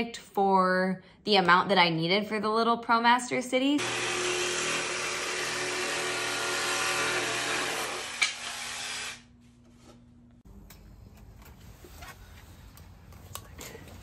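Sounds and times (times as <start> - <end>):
power tool cutting plywood: 3.8 - 9.3.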